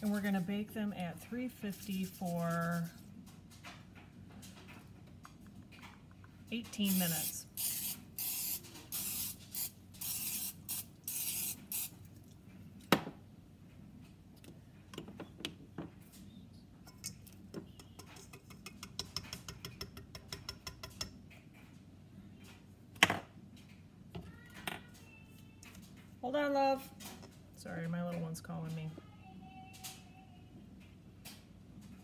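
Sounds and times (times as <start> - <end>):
cooking spray hissing: 6.8 - 12.0.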